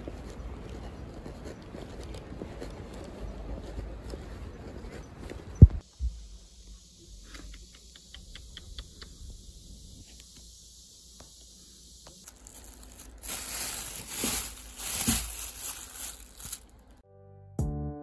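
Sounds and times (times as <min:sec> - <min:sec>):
plastic bag crinkling: 0:12.3 - 0:17.0
keyboard music: 0:17.0 - 0:18.0.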